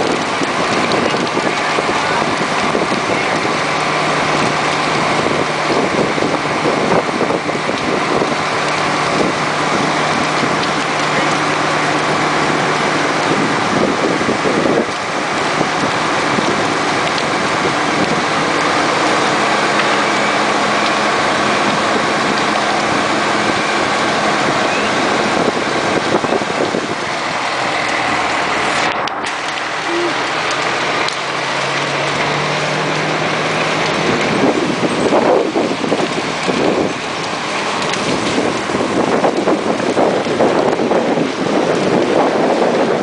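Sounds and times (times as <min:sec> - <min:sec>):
fire engine pump droning: 0:00.0 - 0:43.0.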